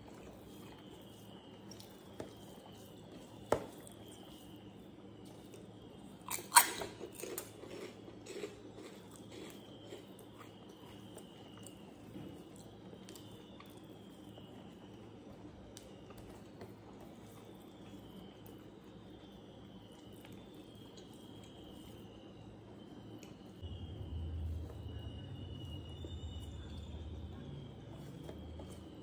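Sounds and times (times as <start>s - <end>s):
sticky rice squishing: 0.0s - 29.0s
sharp crackling crunch: 6.2s - 10.5s.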